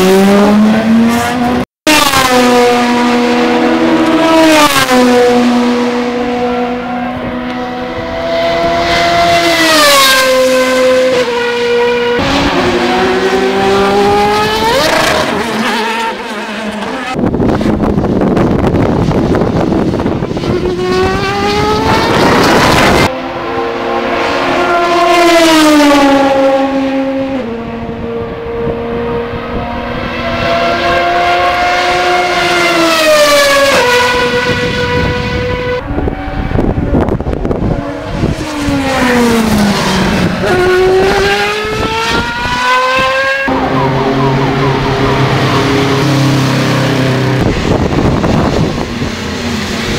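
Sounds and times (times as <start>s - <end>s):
race car exhaust at full throttle: 0.0s - 49.9s.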